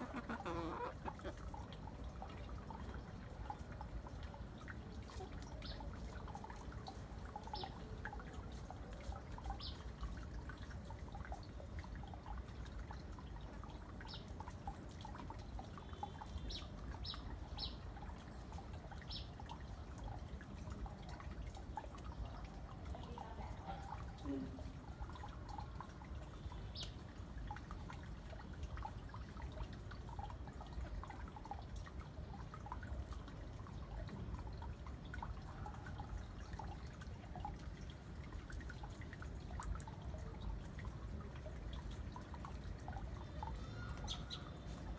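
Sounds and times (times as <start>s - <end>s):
chickens pecking and rustling: 0.0s - 1.5s.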